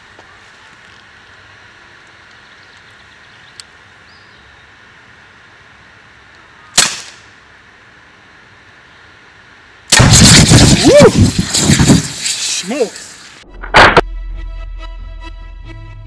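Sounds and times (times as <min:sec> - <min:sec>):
faint outdoor background: 0:00.0 - 0:16.0
pellet gun crack: 0:06.8 - 0:07.3.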